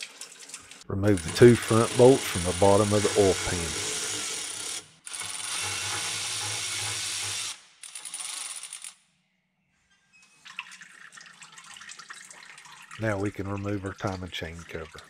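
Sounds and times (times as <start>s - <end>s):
ratchet wrench whirring: 1.1s - 9.0s.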